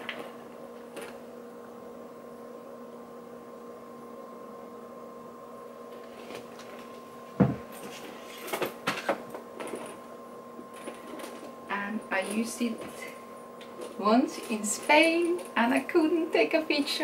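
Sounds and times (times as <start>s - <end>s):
steady electrical hum: 0.0s - 17.0s
dull thump: 7.4s - 7.7s.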